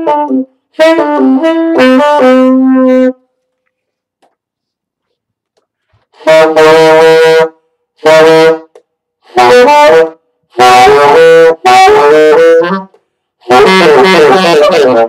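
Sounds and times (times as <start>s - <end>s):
tenor saxophone phrases: 0.0s - 3.2s, 6.2s - 15.0s.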